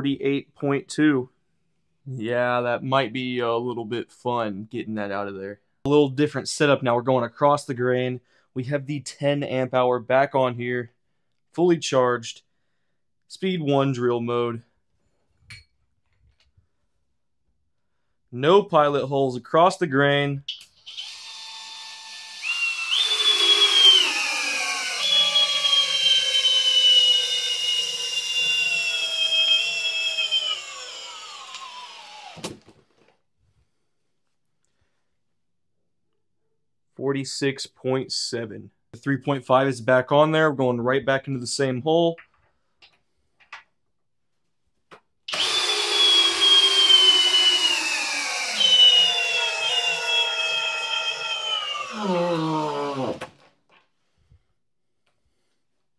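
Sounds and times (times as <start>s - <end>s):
cordless drill motor whine: 20.8s - 32.4s, 45.3s - 53.2s.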